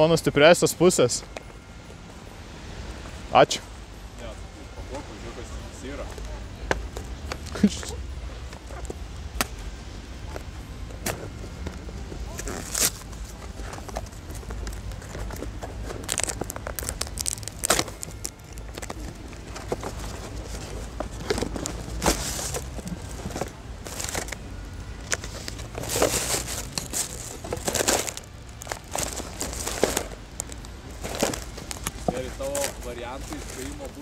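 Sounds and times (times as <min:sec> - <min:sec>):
steady low rumble: 0:00.0 - 0:34.0
wrapping paper crinkling and tearing: 0:12.3 - 0:24.4, 0:25.2 - 0:34.0.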